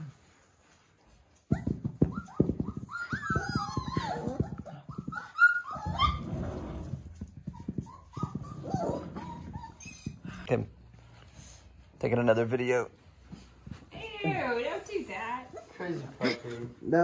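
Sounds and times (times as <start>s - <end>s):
puppies yipping and whining: 1.4s - 10.4s.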